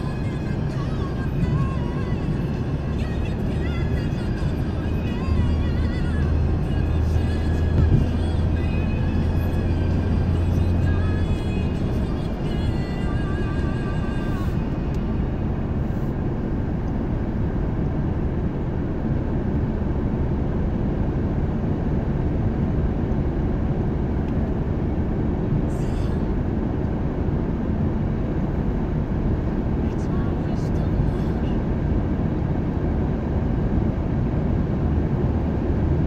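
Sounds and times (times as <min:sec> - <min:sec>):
car engine: 0:00.0 - 0:36.0
tyre and road noise: 0:04.5 - 0:17.5.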